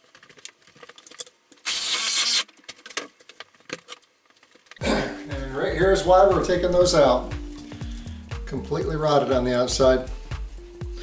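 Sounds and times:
reciprocating saw cutting: 0:01.7 - 0:02.5.

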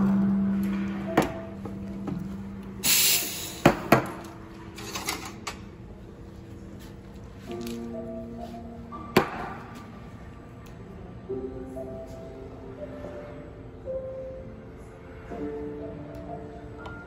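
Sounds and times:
steam wand steaming milk: 0:02.8 - 0:03.7
loud hiss of steam: 0:02.8 - 0:03.8.

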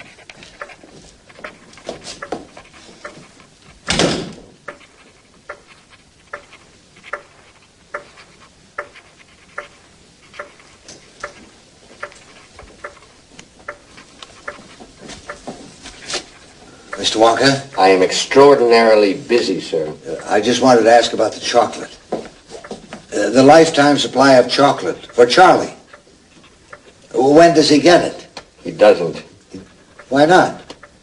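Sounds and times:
footsteps on hard floor: 0:00.0 - 0:16.6, 0:22.0 - 0:23.1
loud knock: 0:03.9 - 0:04.5.

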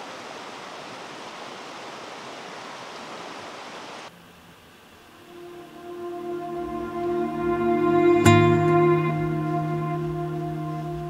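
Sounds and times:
running water rushing: 0:00.0 - 0:11.0
faint music: 0:05.1 - 0:11.0.

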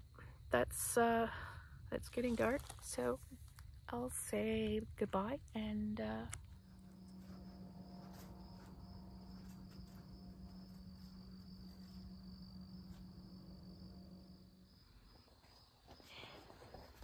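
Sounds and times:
crickets trilling: 0:00.0 - 0:17.0
low steady hum: 0:00.0 - 0:17.0.

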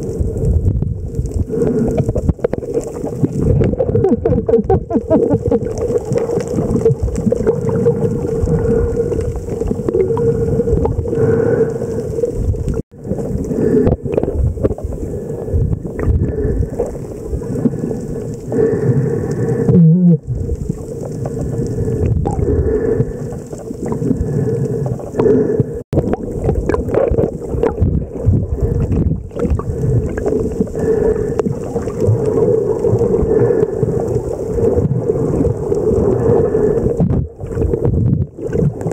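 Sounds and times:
underwater rushing water: 0:00.0 - 0:38.9.

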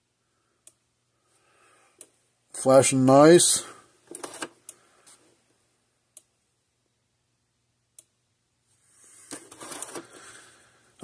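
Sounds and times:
soft handling noise: 0:04.0 - 0:05.6, 0:08.6 - 0:10.6.

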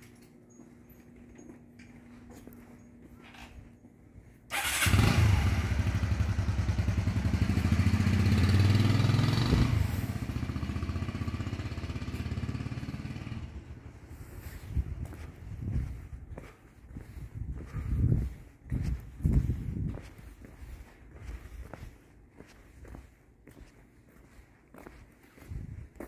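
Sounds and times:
motorbike engine running: 0:04.6 - 0:15.9.

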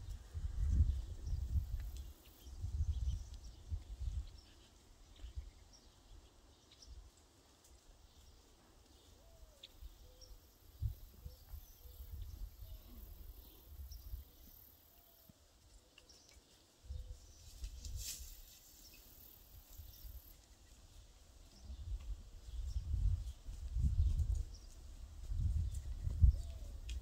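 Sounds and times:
wind gusts on microphone: 0:00.0 - 0:04.4, 0:21.7 - 0:27.0.

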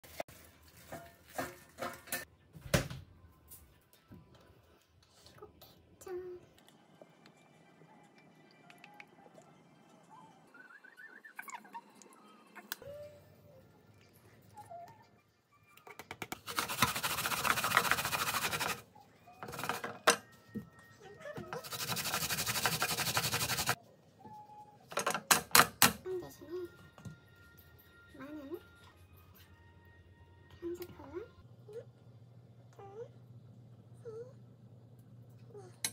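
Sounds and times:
grater rasping: 0:16.4 - 0:18.8, 0:21.6 - 0:23.8.

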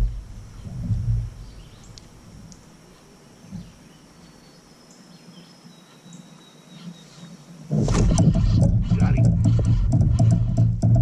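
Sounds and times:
faint bird chirps: 0:00.0 - 0:07.8
low hiss: 0:00.0 - 0:08.2
steady insect tones: 0:00.0 - 0:11.0.

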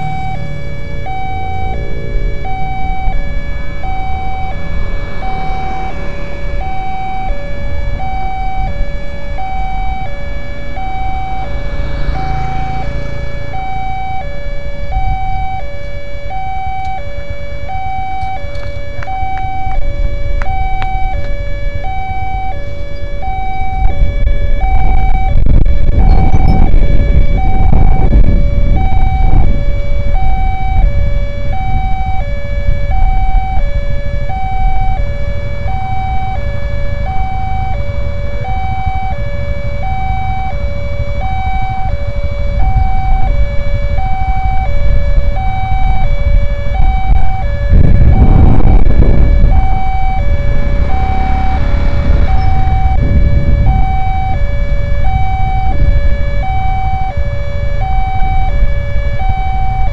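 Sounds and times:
vehicle passing: 0:00.0 - 0:15.6, 0:47.9 - 0:55.0
road traffic rumbling: 0:00.0 - 0:59.9
two-tone level crossing alarm: 0:00.0 - 0:59.9.

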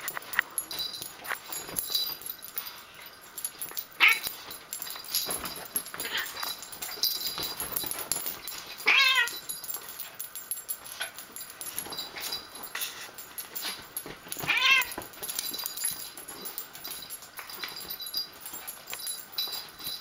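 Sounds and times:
rustling and scuffling on bedding: 0:00.0 - 0:20.0
cat meowing: 0:08.9 - 0:09.3, 0:14.5 - 0:15.0.

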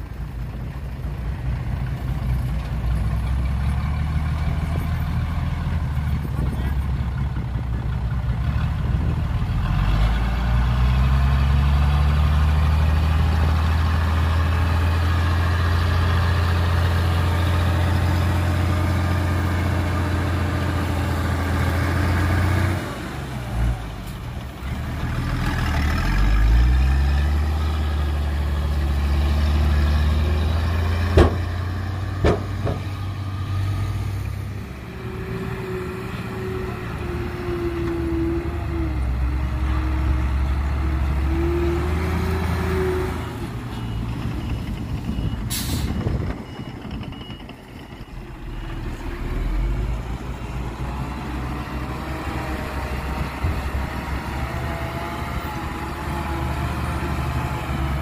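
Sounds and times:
heavy diesel engine revving: 0:03.1 - 0:47.6, 0:48.2 - 0:58.0
sharp knocks: 0:31.1 - 0:31.5, 0:32.2 - 0:33.0.

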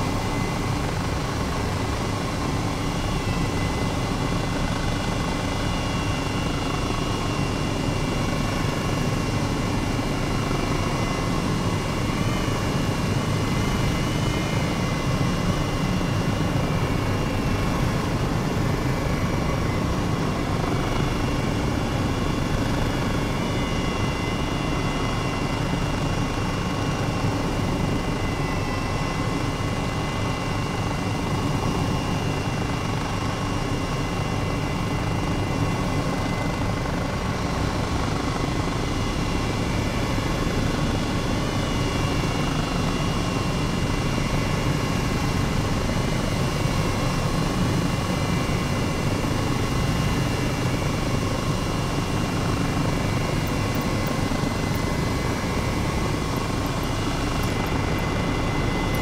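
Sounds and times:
helicopter engine and rotor: 0:00.0 - 0:59.0
high steady whine: 0:29.0 - 0:59.0.

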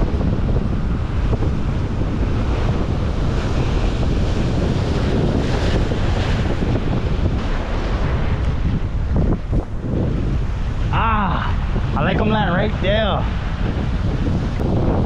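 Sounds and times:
ocean surf: 0:00.0 - 0:15.0
wind buffeting microphone: 0:00.0 - 0:15.0.

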